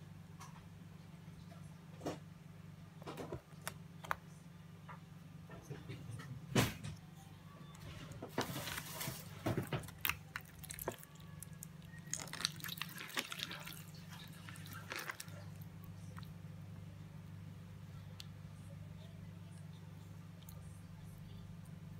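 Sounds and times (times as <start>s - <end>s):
steady low hum: 0.0s - 21.9s
slime squelching and popping: 8.6s - 16.3s.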